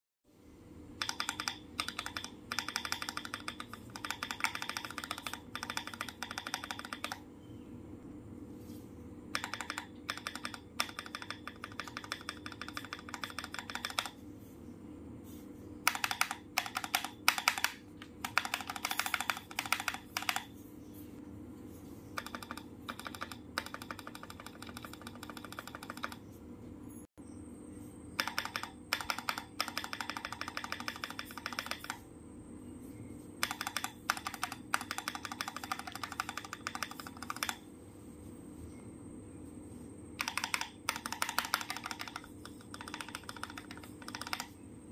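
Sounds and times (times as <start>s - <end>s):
mechanical keyboard typing: 1.0s - 7.2s, 9.3s - 14.2s, 15.8s - 20.5s, 22.2s - 26.3s, 28.2s - 32.1s, 33.4s - 37.6s, 40.1s - 44.6s.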